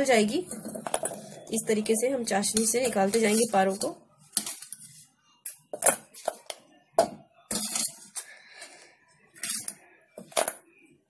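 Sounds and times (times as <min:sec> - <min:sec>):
metal utensils clinking: 0:00.2 - 0:04.9, 0:07.5 - 0:08.3, 0:09.4 - 0:10.6.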